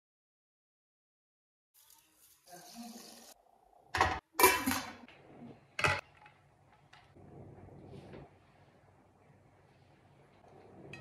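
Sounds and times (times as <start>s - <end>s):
broth poured into metal pot: 1.8s - 3.4s.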